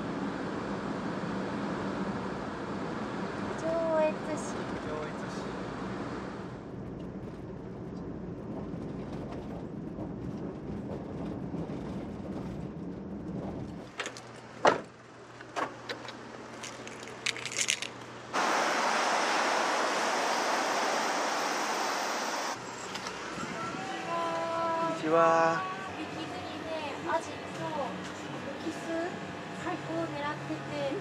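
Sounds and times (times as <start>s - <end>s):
van engine and road rumble: 0.0s - 31.0s
steady rushing noise: 18.3s - 22.6s.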